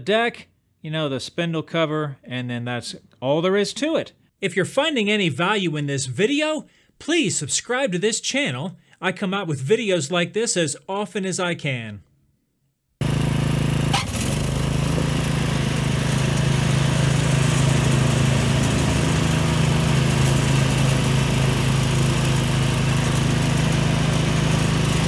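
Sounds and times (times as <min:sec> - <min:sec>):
riding mower engine running: 0:13.0 - 0:25.0.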